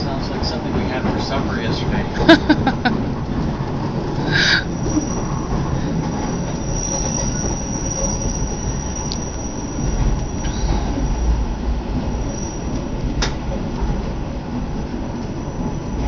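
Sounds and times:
train rumble inside carriage: 0:00.0 - 0:16.0
train wheels squealing: 0:03.9 - 0:16.0.

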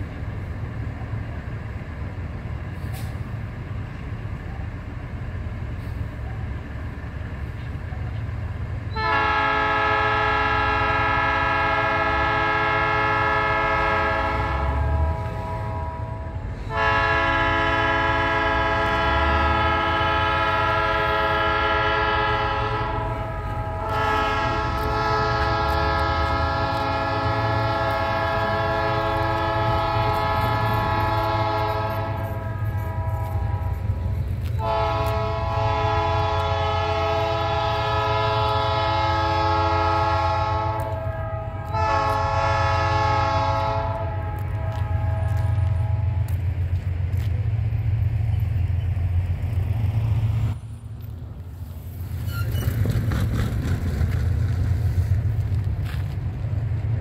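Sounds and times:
low train rumble: 0:00.0 - 0:57.0
locomotive air horn blasts: 0:08.8 - 0:46.4.

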